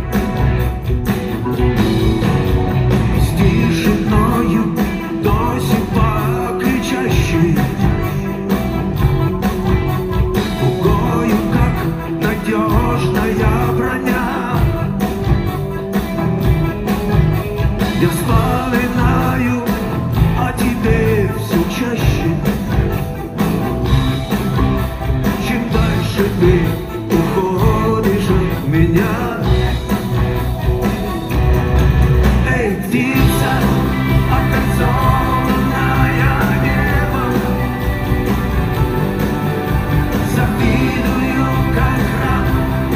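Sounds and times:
bass guitar: 0.0s - 42.9s
drums: 0.0s - 42.9s
electric guitars: 0.0s - 42.9s
person singing: 3.1s - 9.4s, 10.5s - 15.9s, 17.9s - 23.0s, 25.2s - 30.1s, 32.3s - 42.9s.

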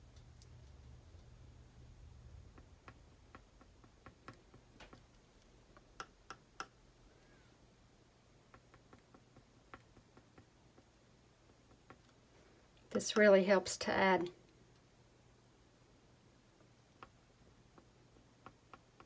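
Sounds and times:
stylus tapping on canvas: 2.5s - 5.1s, 8.5s - 12.1s.

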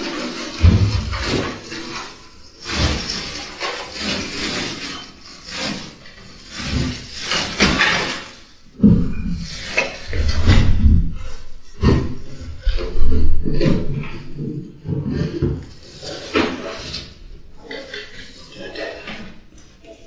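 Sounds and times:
heavy low thumps: 0.6s - 1.5s.

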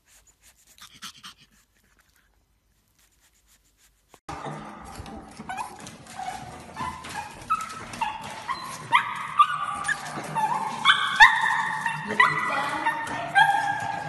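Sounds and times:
dog yipping and whining: 5.3s - 14.0s.

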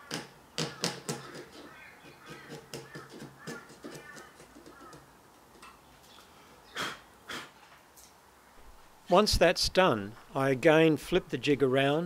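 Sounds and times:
chisel scraping and clicking wood: 0.0s - 5.8s.

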